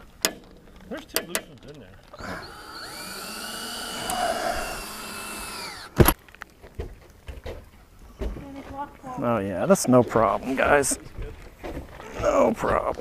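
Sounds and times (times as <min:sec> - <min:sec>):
power drill running: 0:02.1 - 0:06.2.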